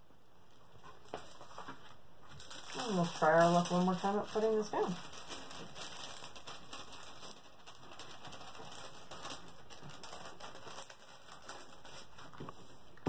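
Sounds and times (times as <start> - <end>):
hands rubbing plastic film: 0.7 - 13.0.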